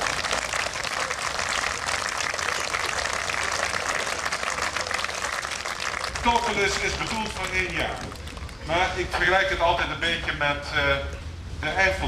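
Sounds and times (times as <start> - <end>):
group applause: 0.0 - 8.8.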